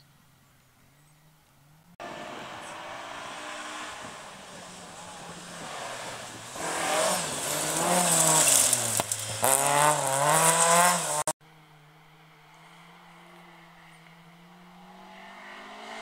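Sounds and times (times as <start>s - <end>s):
tyres hissing on gravel: 2.0s - 11.3s
rally car engine revving: 2.0s - 11.4s, 12.7s - 16.0s.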